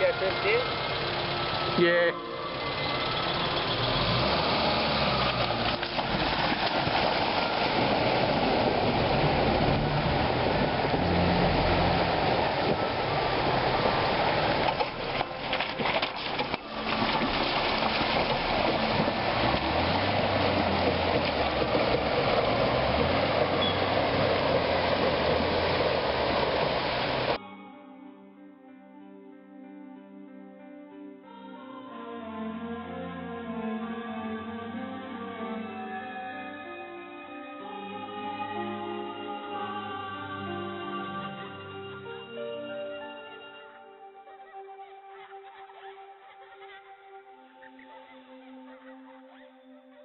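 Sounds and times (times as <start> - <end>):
car engine running low: 0.0 - 27.4
creek water rushing: 0.0 - 27.4.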